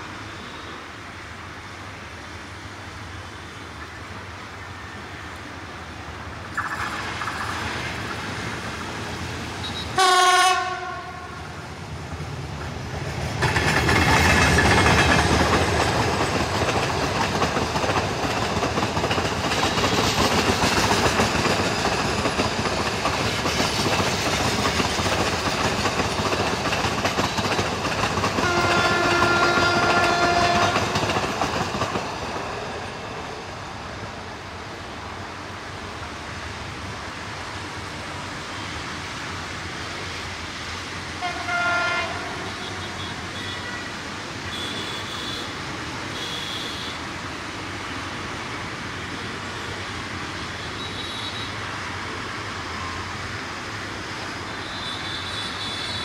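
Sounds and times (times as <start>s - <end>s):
train horn blast: 9.6s - 11.5s, 28.4s - 30.9s, 41.2s - 43.9s
train wheels clacking on rail joints: 12.1s - 32.9s.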